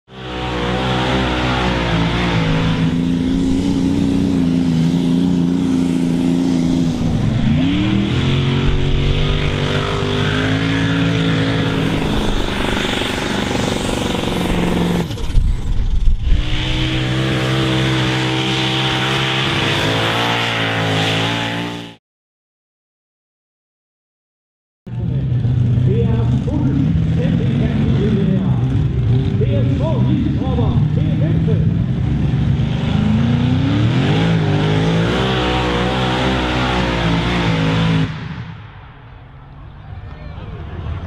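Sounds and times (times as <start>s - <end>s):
tractor engines under load: 0.3s - 18.2s, 24.9s - 37.8s.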